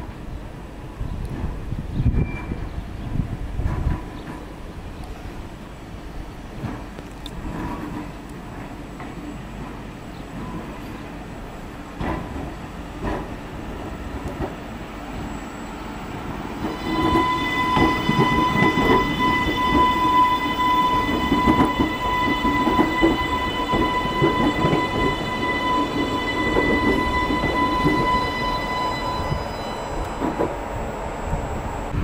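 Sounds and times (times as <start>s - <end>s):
train wheels clattering on track: 3.6s - 4.6s, 6.5s - 11.1s, 11.9s - 14.7s, 16.6s - 30.6s.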